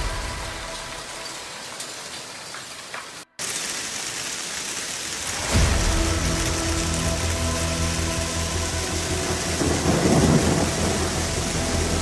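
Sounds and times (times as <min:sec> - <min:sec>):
hail downpour hissing: 0:00.0 - 0:12.0
low rumble of thunder: 0:09.2 - 0:12.0.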